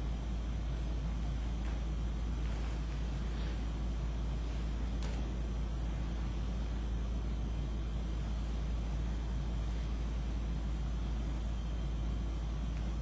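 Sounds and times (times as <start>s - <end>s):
room noise rumble and hiss: 0.0s - 13.0s.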